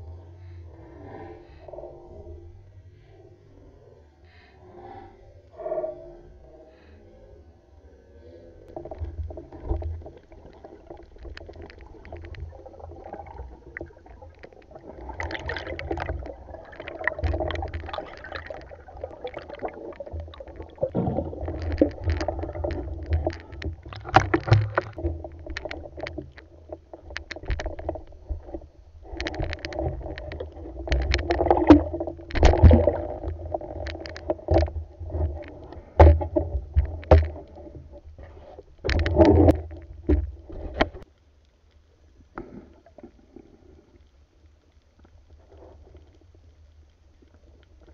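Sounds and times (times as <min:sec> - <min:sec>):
muffled underwater rumble: 0:00.0 - 0:47.9
knocks and clicks of handling: 0:20.9 - 0:37.7.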